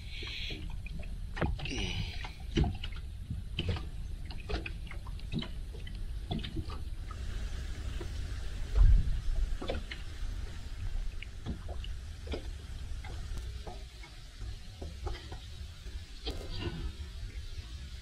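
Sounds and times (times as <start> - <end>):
small waves lapping against hull: 0.0 - 18.0
steady low rumble: 5.1 - 18.0.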